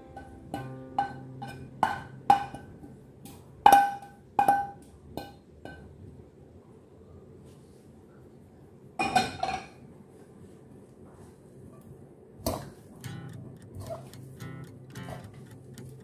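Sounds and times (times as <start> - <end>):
frying pan clinking on ceramic bowl: 0.1 - 2.8.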